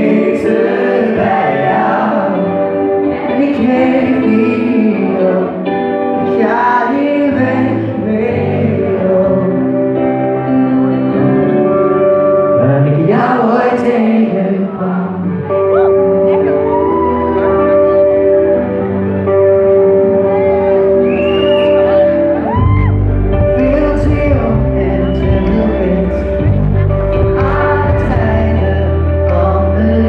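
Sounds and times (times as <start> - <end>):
bass guitar: 0.0 - 30.0
electric guitars: 0.0 - 30.0
person singing: 0.0 - 30.0.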